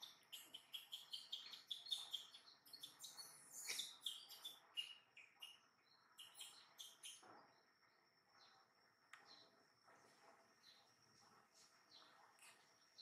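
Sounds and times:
birds chirping: 0.0s - 7.7s.

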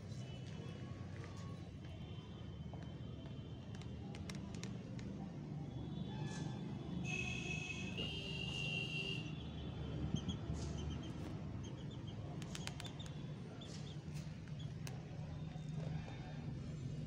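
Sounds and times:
sharp clicks: 12.4s - 13.2s.

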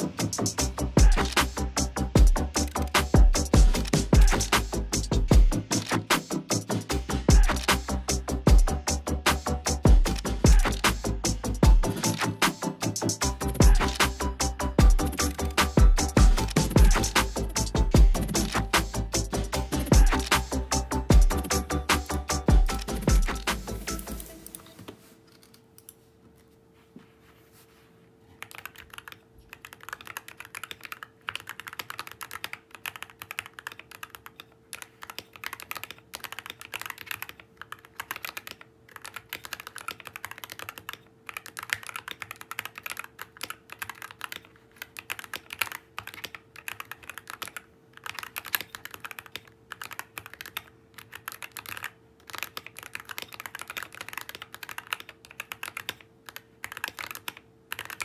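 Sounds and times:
typing on mechanical keyboard: 28.4s - 58.0s.

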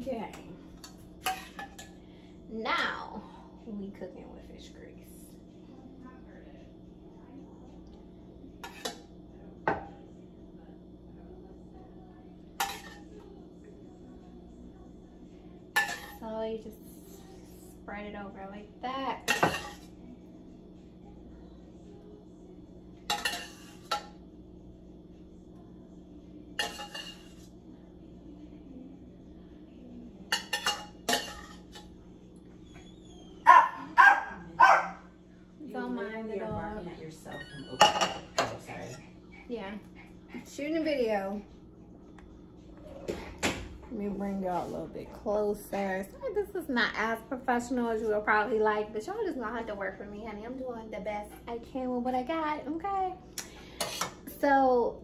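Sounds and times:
utensils clinking on cookware: 0.8s - 2.0s, 12.6s - 13.2s, 15.7s - 16.3s, 19.2s - 19.9s, 23.0s - 24.2s, 26.6s - 27.5s, 30.3s - 31.9s, 37.3s - 39.0s, 53.7s - 54.4s
dog barking: 33.4s - 35.1s.

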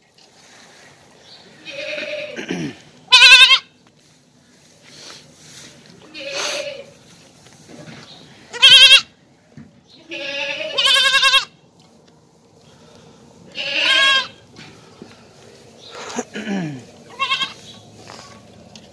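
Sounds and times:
goat kid bleating: 1.6s - 3.8s, 6.0s - 7.0s, 8.5s - 9.2s, 9.9s - 11.6s, 13.5s - 14.4s, 17.0s - 18.4s.

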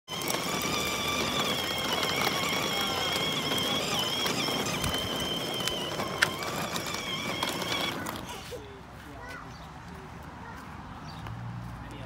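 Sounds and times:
electric motor whine: 0.1s - 8.2s
plastic wheels rumbling on asphalt: 0.1s - 8.7s.

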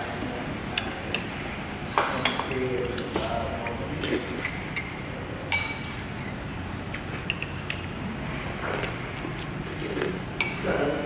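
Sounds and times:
restaurant background rumble: 0.0s - 11.0s
tableware clinking: 4.4s - 6.4s.

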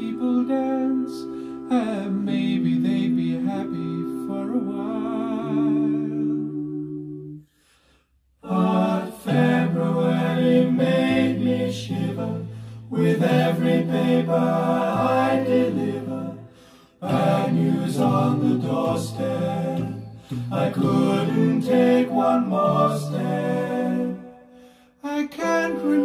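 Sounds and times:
unaccompanied singing over loudspeakers: 8.4s - 24.4s.

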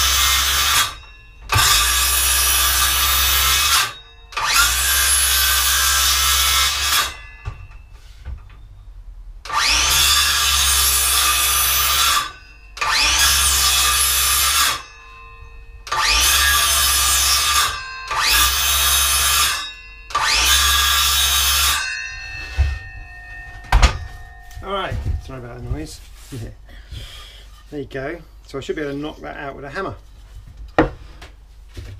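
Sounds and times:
circular saw cutting wood: 0.0s - 7.4s, 9.5s - 23.4s.

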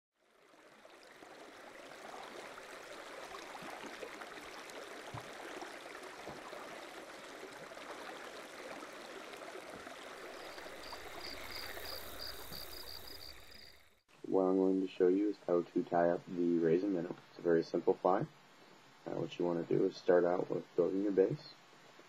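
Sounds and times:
flowing stream rushing: 0.3s - 13.7s.

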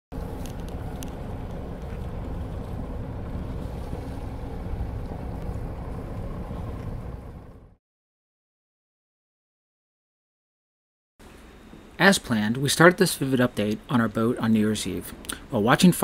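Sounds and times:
boat engine rumble: 0.1s - 7.8s.

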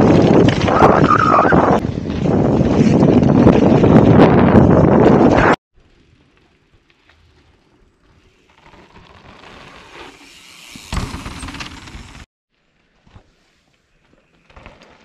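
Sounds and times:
mountain bike clattering: 6.4s - 12.3s.

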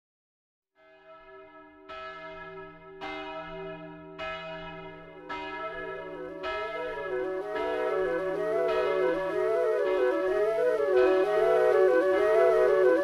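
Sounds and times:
wavering melody: 6.1s - 13.0s.

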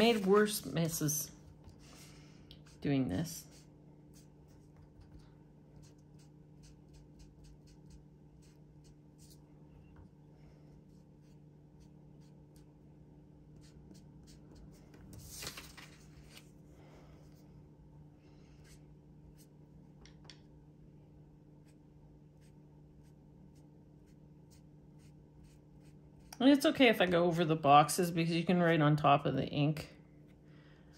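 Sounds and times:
paper rustle: 0.0s - 0.9s, 15.1s - 16.5s
low steady hum: 0.0s - 30.9s.

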